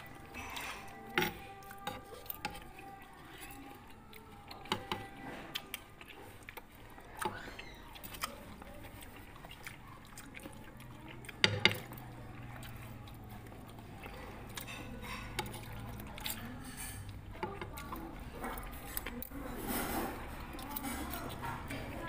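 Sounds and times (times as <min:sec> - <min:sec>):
spoons clinking against bowl: 0:00.0 - 0:05.2.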